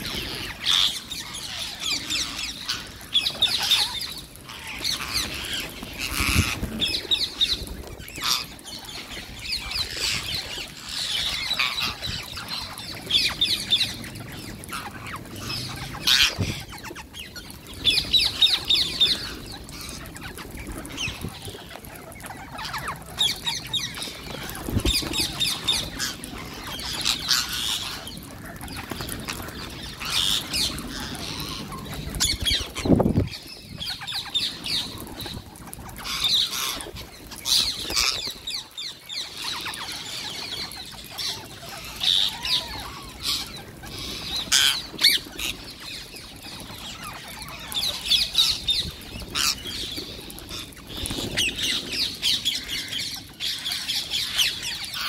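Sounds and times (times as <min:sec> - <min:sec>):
parakeets screeching and squawking: 0:00.0 - 0:55.0
bird wingbeats: 0:17.8 - 0:28.0.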